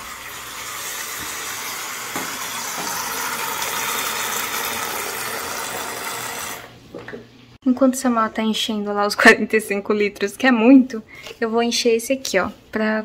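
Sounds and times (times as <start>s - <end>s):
water spraying into plastic tank: 0.0s - 6.8s.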